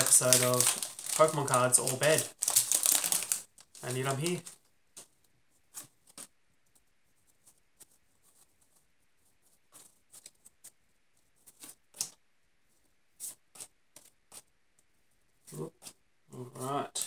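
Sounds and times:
trading cards rustling and sliding: 0:00.0 - 0:05.2.

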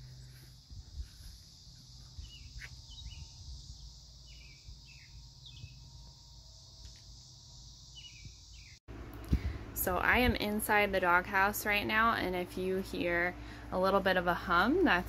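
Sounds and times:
high insect drone: 0:00.0 - 0:08.8
low steady hum: 0:00.0 - 0:15.0.

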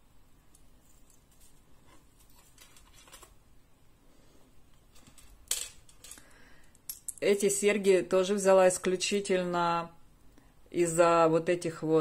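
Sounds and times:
metal jewelry rattling: 0:04.9 - 0:07.6.

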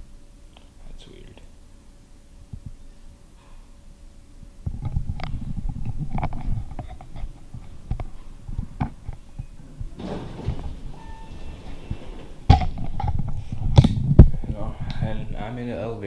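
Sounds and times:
camera handling rumble and bumps: 0:04.7 - 0:10.8, 0:11.9 - 0:14.4.

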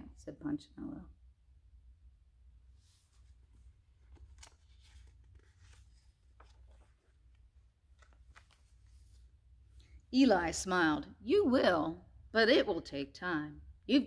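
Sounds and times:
book pages turning: 0:02.8 - 0:09.4.

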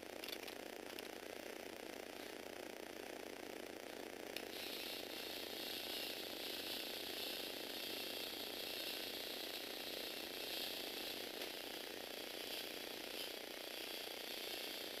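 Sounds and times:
toy motor click: 0:00.2 - 0:01.2, 0:04.3 - 0:15.0
toy motor gear whir: 0:04.3 - 0:15.0.

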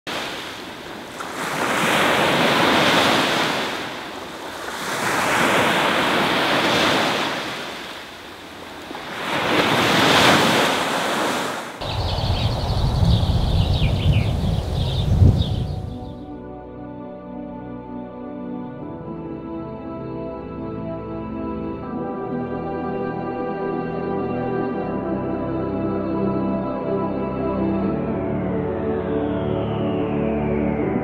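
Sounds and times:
waves breaking on a shore: 0:00.1 - 0:12.0
low wind rumble: 0:11.8 - 0:16.3.

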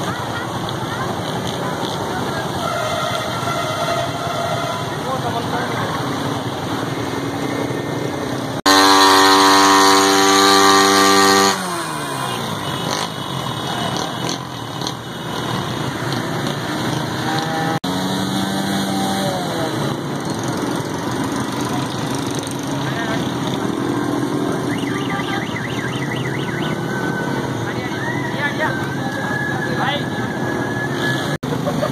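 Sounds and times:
motorcycle engine revving: 0:00.0 - 0:31.9
traffic in floodwater: 0:00.0 - 0:31.9.

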